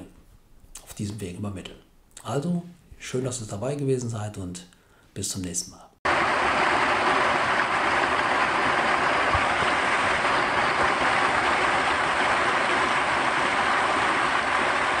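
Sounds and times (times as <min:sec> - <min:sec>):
heavy rain off a roof: 0:06.1 - 0:15.0.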